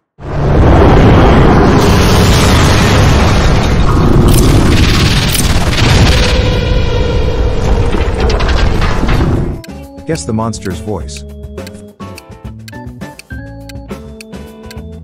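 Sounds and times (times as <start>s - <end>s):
loud dense rumble: 0.2s - 9.6s.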